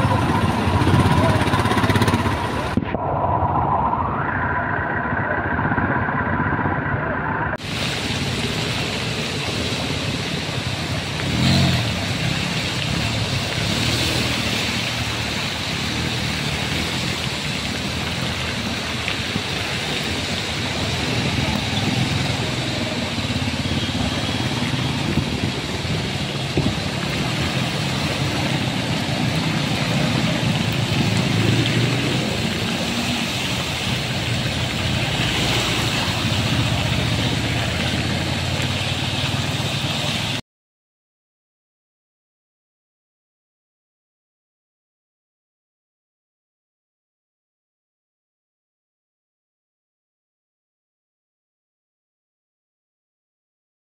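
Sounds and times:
vehicle engines running: 0.0s - 2.8s, 5.0s - 40.4s
heavy rain: 0.0s - 40.4s
tyres splashing through water: 7.6s - 40.4s.

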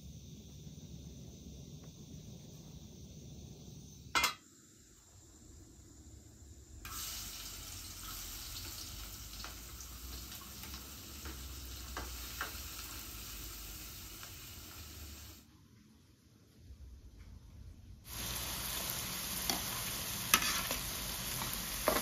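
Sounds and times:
oil sizzling in pan: 0.0s - 15.5s, 18.0s - 22.0s
pan clanking on burner grate: 4.1s - 4.4s
spoon stirring against pan: 10.5s - 13.0s, 18.1s - 22.0s.

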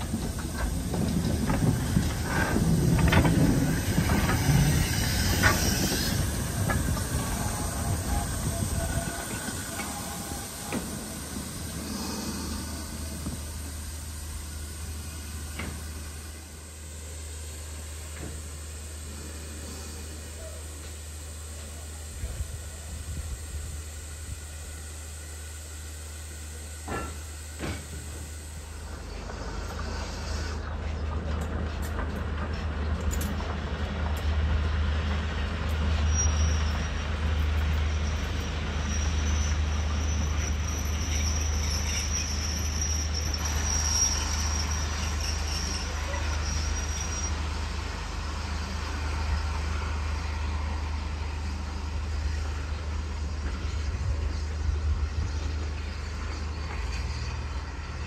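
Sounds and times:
train wheels rumbling on rails: 0.0s - 58.0s
high wheel squeal: 35.9s - 37.1s, 37.8s - 47.8s.

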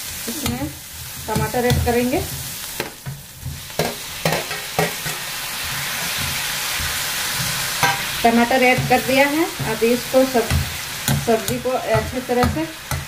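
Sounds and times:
food sizzling in a pan: 0.0s - 13.0s
spatula scraping a pan: 3.4s - 13.0s.

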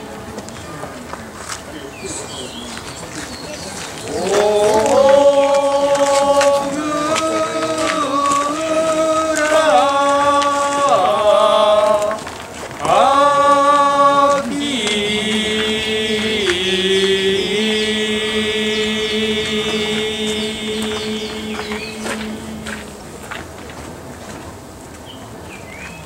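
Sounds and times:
voices singing a chant: 0.0s - 0.8s, 3.4s - 23.3s.

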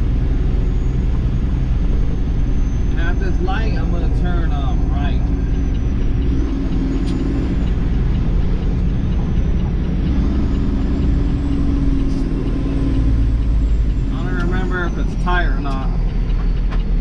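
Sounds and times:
diesel truck engine running: 0.0s - 17.0s
turn signal ticking: 0.0s - 17.0s.

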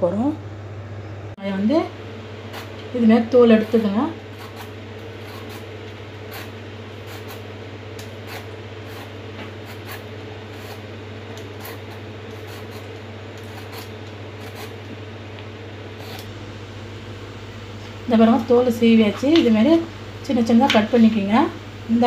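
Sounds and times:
low hum: 0.0s - 22.0s
vegetable peeler scraping skin: 3.6s - 5.7s, 6.3s - 7.4s, 8.0s - 10.8s, 11.4s - 14.8s, 16.0s - 16.3s.

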